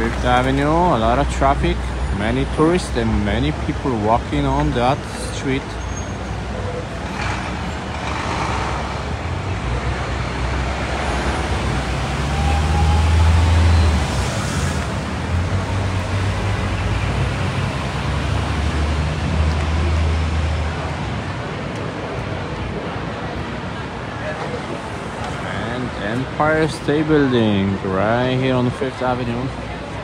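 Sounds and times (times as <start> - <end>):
traffic engine rumble: 0.0 - 30.0.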